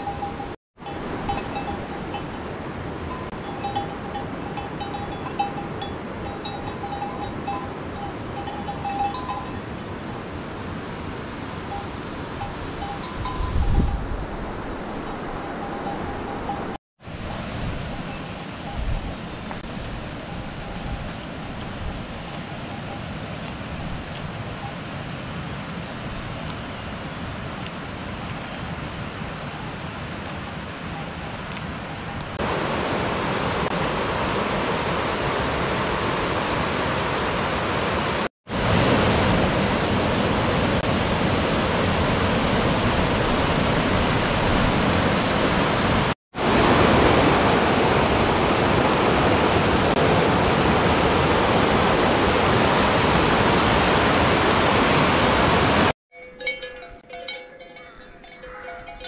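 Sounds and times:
river rushing over rocks: 31.3 - 55.9.

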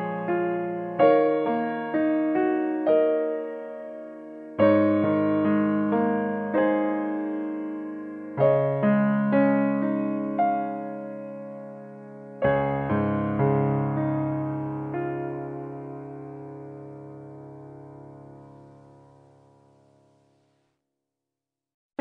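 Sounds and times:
gentle piano melody: 0.0 - 20.4.

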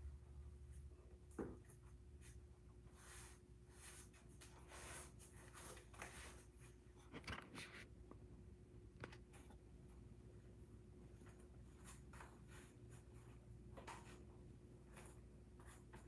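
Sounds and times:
faint steady hum: 0.0 - 16.0
rustling on a yoga mat: 1.8 - 8.0.

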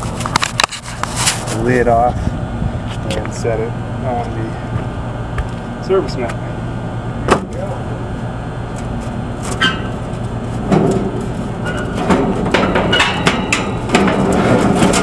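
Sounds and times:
steady low hum: 0.0 - 15.0
metal clanks and scrapes: 9.4 - 15.0.

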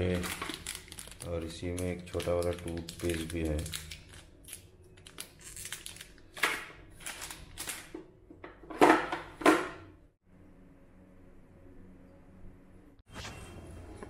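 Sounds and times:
plastic wrappers crinkling: 0.0 - 8.0.

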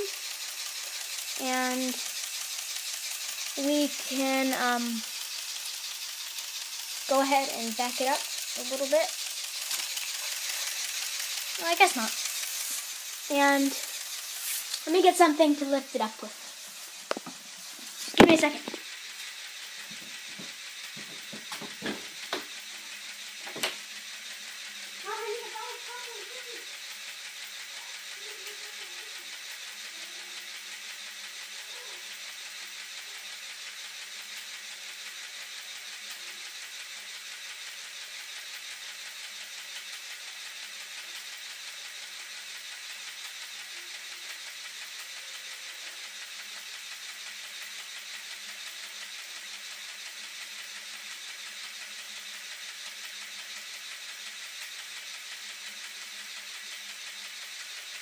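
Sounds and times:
steady hiss: 0.0 - 29.2.

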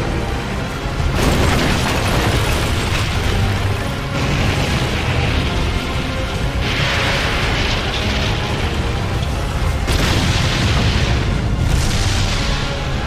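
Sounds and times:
heavy continuous rumble: 0.0 - 13.0
music: 0.0 - 13.0
huge explosions: 0.8 - 13.0.

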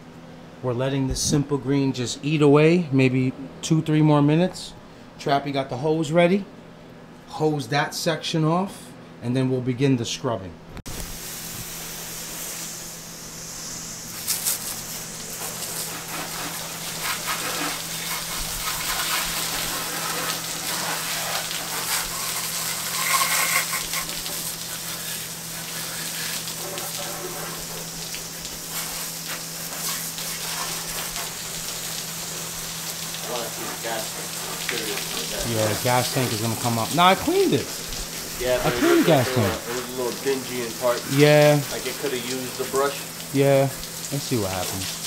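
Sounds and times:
hose water spraying: 10.9 - 45.0
water splashing on floor: 14.1 - 45.0.

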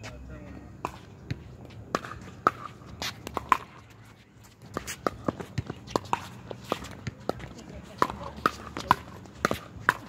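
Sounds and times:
footsteps on hard court: 0.8 - 10.0.

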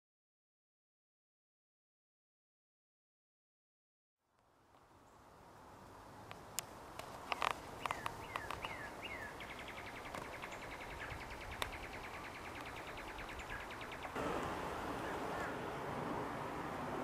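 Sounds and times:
wind noise: 10.1 - 17.0.

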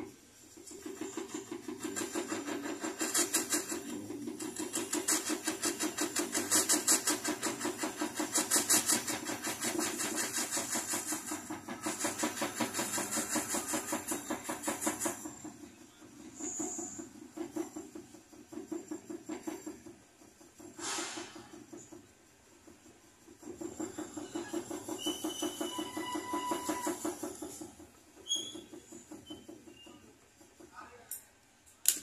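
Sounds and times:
soldering torch pulsing: 0.6 - 15.3.

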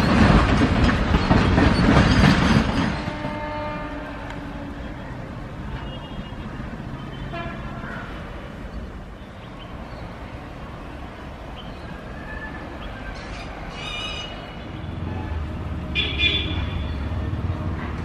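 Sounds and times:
freight train rumbling past: 0.0 - 18.0
train horn toots: 2.9 - 6.3, 7.2 - 7.8, 13.7 - 18.0.

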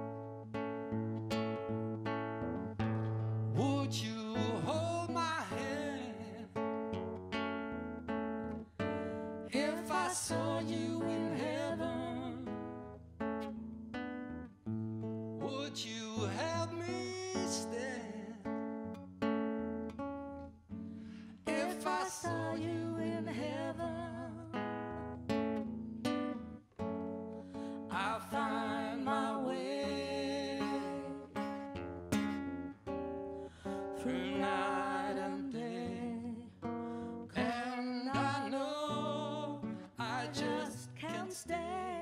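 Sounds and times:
acoustic guitar: 0.0 - 42.0
person singing: 9.5 - 12.7, 21.5 - 24.6, 27.9 - 31.5, 33.6 - 36.6, 37.4 - 42.0.

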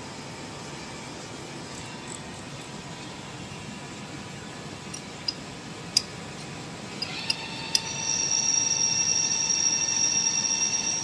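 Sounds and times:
high-pitched machine whine: 6.9 - 11.0.

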